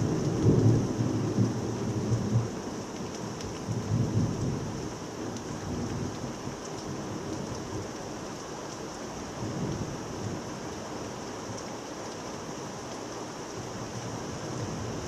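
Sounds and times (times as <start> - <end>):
low rolling thunder: 0.0 - 2.6
steady rain: 0.0 - 15.0.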